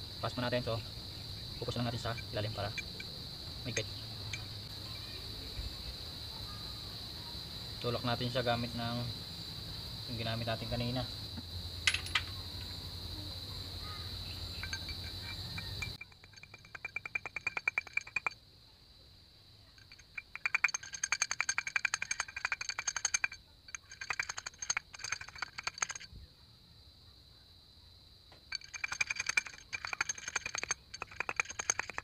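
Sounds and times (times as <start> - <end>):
metal tool tapping bearing: 4.2 - 4.5, 11.9 - 12.3, 14.6 - 18.4, 19.8 - 26.1, 28.5 - 32.0.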